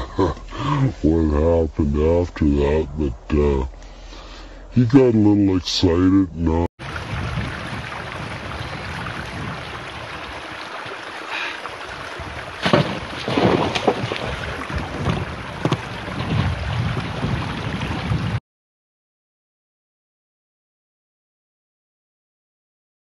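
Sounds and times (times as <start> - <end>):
wind buffeting microphone: 6.8 - 10.6, 11.8 - 18.4
man falling on ice: 12.6 - 16.4.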